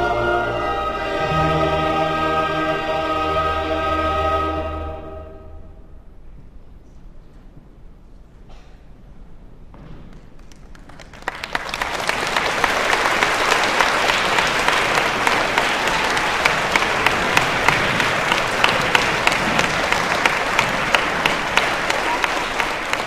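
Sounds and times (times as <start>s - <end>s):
audience applauding: 10.4s - 23.0s.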